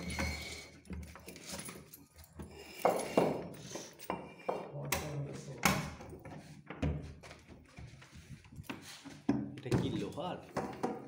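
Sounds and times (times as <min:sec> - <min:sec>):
keys clinking against wooden door: 0:00.0 - 0:05.2.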